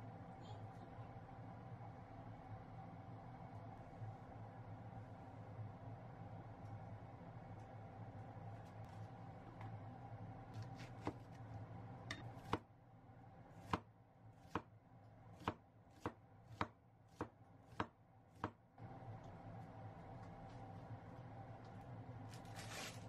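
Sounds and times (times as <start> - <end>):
low steady hum: 0.0 - 23.0
knife slicing onion on board: 10.6 - 11.4, 12.1 - 12.6, 13.6 - 14.7, 15.3 - 18.6.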